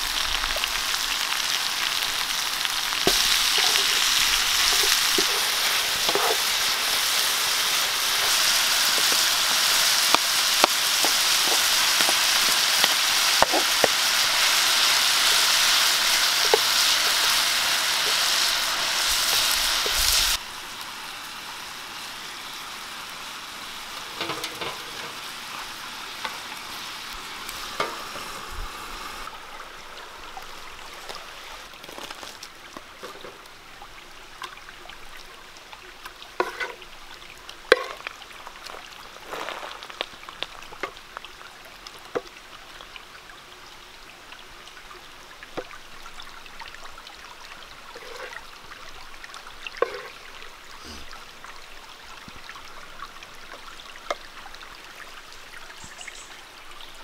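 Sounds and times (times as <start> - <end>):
food sizzling in a pan: 0.0 - 33.4, 36.3 - 37.0, 37.6 - 40.9, 47.8 - 51.3
spatula scraping metal pan: 4.7 - 6.7, 36.4 - 36.8.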